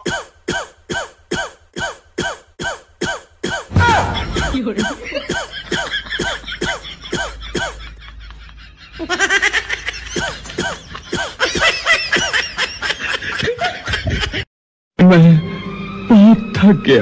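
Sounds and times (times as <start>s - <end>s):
person laughing hard: 3.5s - 14.5s.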